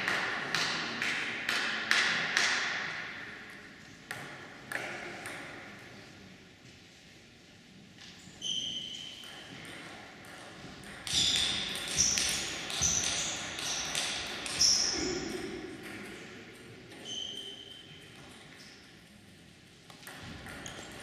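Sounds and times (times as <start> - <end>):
table tennis ball bouncing: 0.0 - 3.4, 4.1 - 5.7, 9.0 - 18.7, 19.9 - 21.0.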